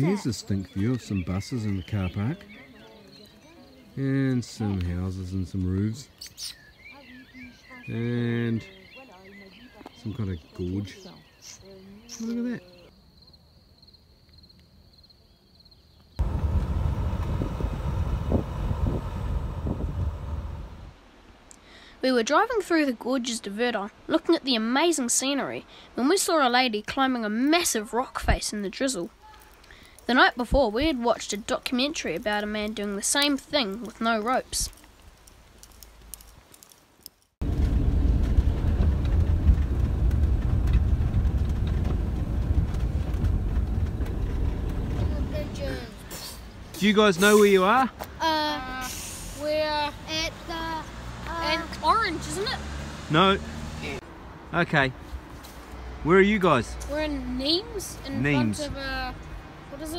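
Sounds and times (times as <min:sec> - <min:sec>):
insects chirping: 0:08.6 - 0:21.0
wind on microphone: 0:16.2 - 0:21.0
vehicle rumbling: 0:16.2 - 0:21.3, 0:29.0 - 0:59.9.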